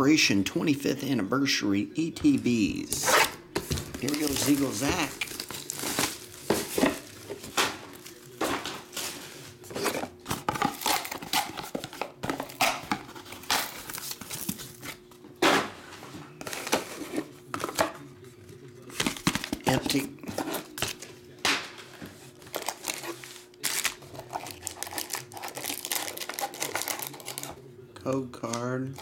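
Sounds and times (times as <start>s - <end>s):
plastic wrapper crinkling: 2.9s - 15.0s, 22.4s - 27.6s
cardboard rustling and knocking: 3.5s - 10.8s.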